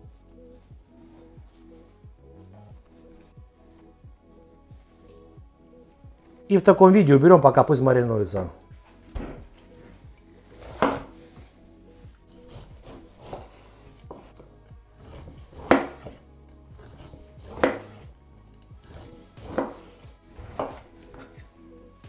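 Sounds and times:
knife cutting on cutting board: 10.6s - 11.3s, 12.3s - 14.4s, 15.0s - 16.2s, 16.8s - 18.1s, 18.8s - 21.5s.

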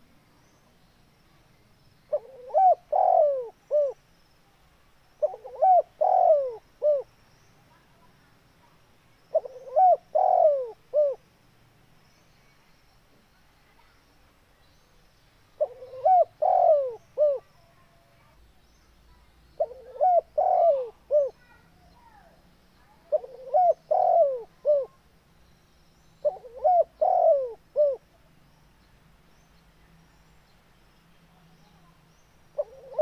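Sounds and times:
dove cooing: 2.1s - 4.0s, 5.2s - 7.1s, 9.3s - 11.2s, 15.6s - 17.5s, 19.6s - 21.6s, 23.0s - 25.0s, 26.2s - 28.0s, 32.6s - 33.0s.

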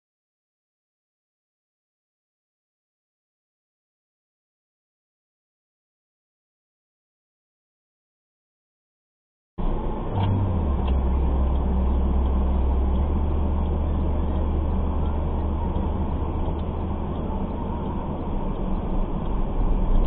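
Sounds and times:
car engine hum: 9.6s - 20.0s
road and cabin noise: 9.6s - 20.0s.

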